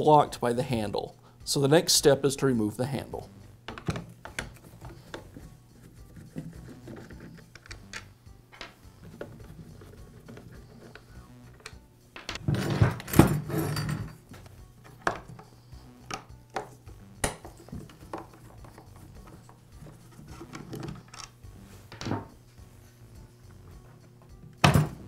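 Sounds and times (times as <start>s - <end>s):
screwdriver clattering and scraping: 3.7s - 11.0s, 11.6s - 15.5s, 17.4s - 22.1s.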